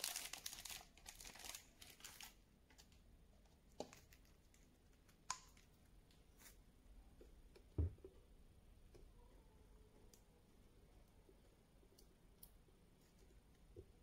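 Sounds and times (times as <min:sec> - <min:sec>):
plastic wrapping crinkling: 0:00.0 - 0:03.0.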